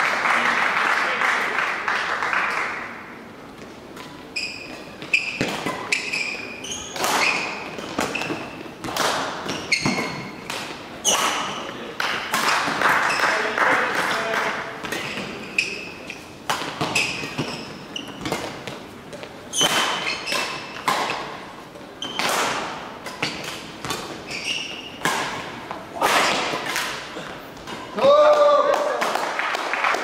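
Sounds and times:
shoes squeaking on floor: 3.9 - 11.8, 12.4 - 13.5, 14.8 - 25.5
racket striking shuttlecock: 4.9 - 6.2, 16.4 - 21.4, 22.0 - 24.3, 24.9 - 28.0.

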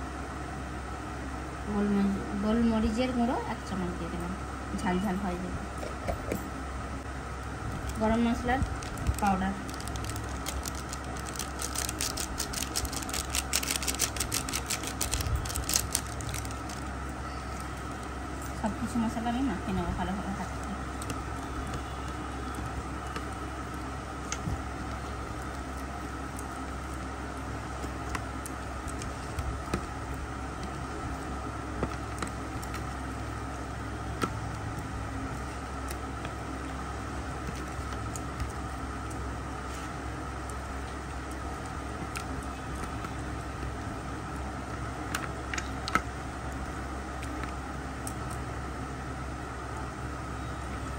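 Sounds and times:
steady low hum: 0.0 - 50.9
hands kneading chicken in bowl: 7.7 - 48.5
hands squishing wet marinade: 7.8 - 17.0.

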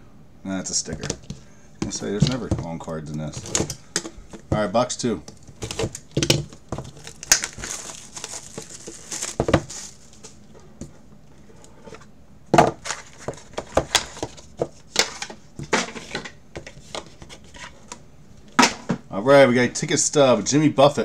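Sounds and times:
plastic wrap tearing and crinkling: 5.4 - 10.4
cardboard box opening: 5.5 - 10.3.

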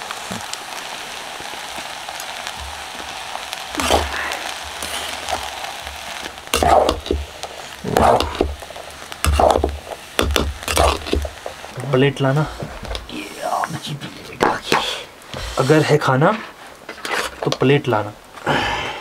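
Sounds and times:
rice sizzling in a metal pot: 0.0 - 18.8
metal spoon scraping a pot: 9.3 - 11.4, 16.9 - 17.5.

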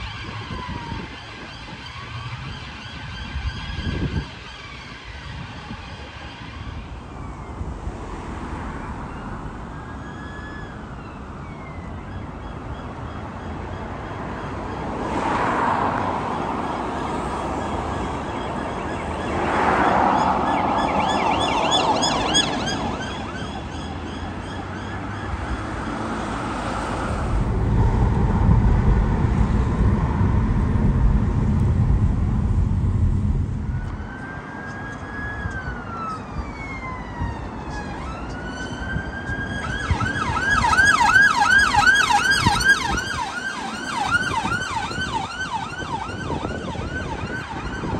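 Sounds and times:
rapid pulsing siren yelp: 0.0 - 15.0, 16.2 - 27.9, 33.6 - 47.9
police sirens wailing: 0.0 - 27.9, 33.7 - 47.9
heavy vehicle engine rumble: 26.2 - 36.4.

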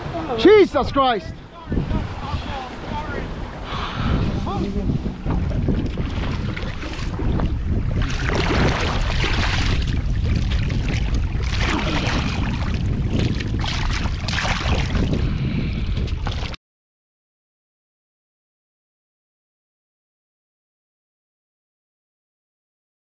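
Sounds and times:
water rushing along hull: 0.0 - 16.6
wind buffeting microphone: 0.0 - 16.6
low rumble: 3.0 - 16.6.

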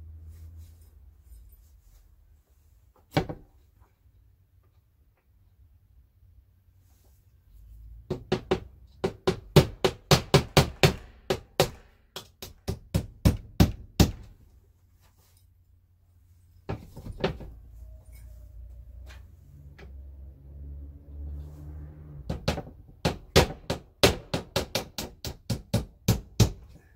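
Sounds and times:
hammer striking nail: 8.1 - 14.4, 22.3 - 26.7.

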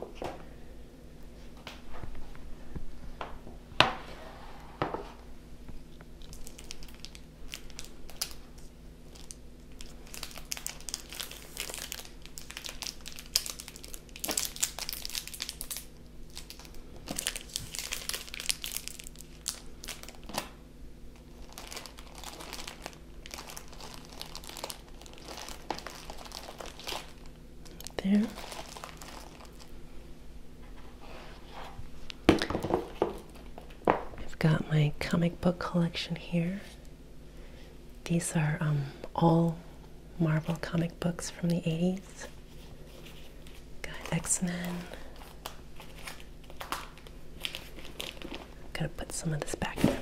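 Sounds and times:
plastic bags crinkling: 6.2 - 20.6, 21.2 - 29.8, 41.7 - 48.8.

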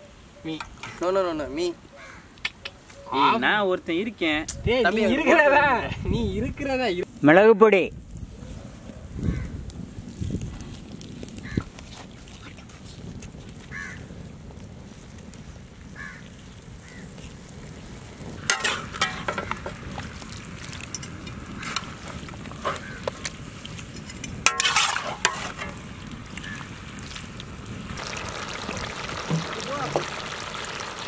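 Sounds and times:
chicken frying in a pan: 13.4 - 14.1, 16.0 - 23.7, 24.4 - 31.0
ladle scraping metal pan: 18.5 - 19.5, 24.0 - 25.8.

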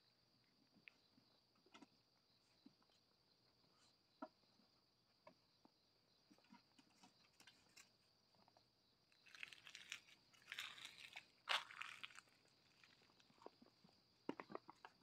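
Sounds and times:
soft crackles: 9.1 - 15.0.

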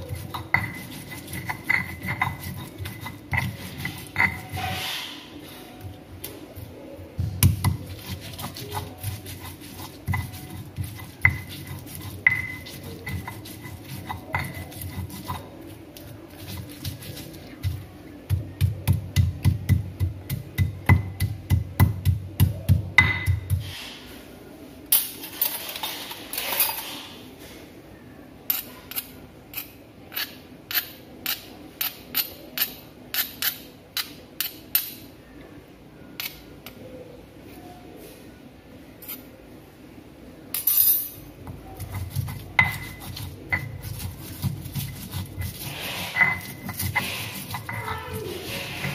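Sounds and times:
pestle pounding in stone mortar: 0.0 - 4.8, 7.2 - 15.6, 16.4 - 23.6, 41.4 - 48.9
pestle scraping: 0.0 - 5.2, 7.3 - 23.9, 28.5 - 34.9, 41.3 - 48.9.

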